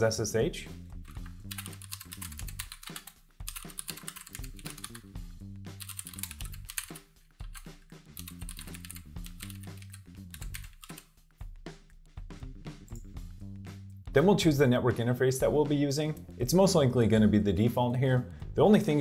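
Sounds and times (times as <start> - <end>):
background music with low bass: 0.0 - 19.0
fast typing on keyboard: 1.1 - 5.1, 5.8 - 11.0.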